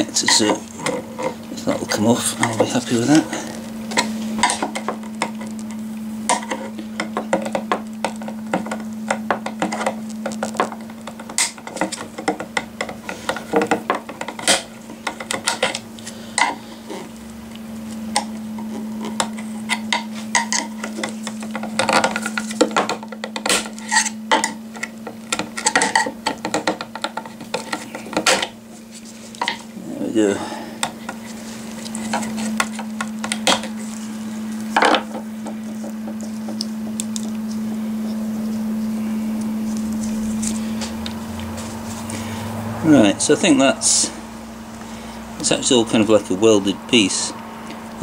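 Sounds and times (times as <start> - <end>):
steady low hum: 0.0 - 48.0
metal tool scraping plastic: 23.4 - 24.9.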